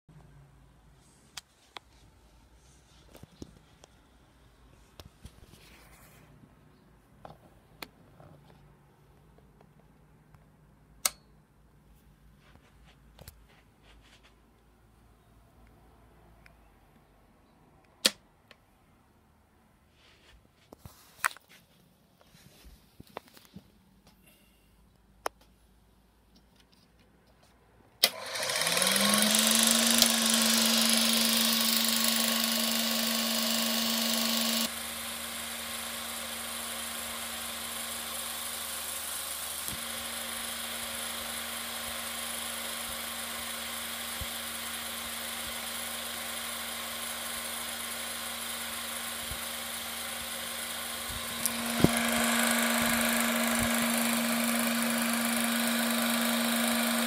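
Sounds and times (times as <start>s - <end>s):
sharp click: 11.0s - 11.3s
film mechanism whirring: 28.0s - 57.0s
film projector motor humming: 28.0s - 57.0s.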